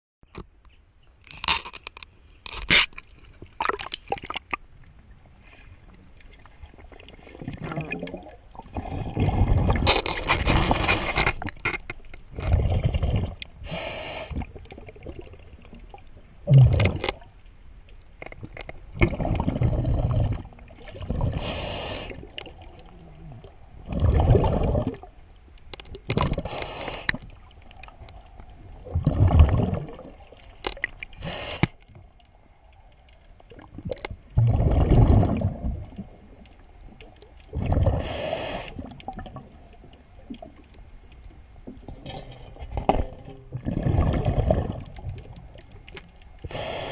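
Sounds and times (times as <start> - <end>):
exhaled bubbles rumbling: 6.0 - 17.4, 18.3 - 25.2, 25.9 - 31.2, 32.0 - 46.7
regulator inhalation hiss: 13.6 - 14.4, 21.4 - 22.3, 26.4 - 27.2, 31.2 - 31.8, 38.0 - 38.9, 46.4 - 46.9.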